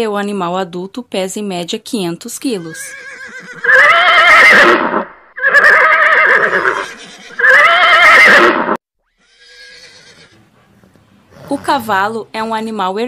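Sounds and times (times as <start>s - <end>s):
horse whinnying: 2.5s - 10.4s, 11.3s - 11.9s.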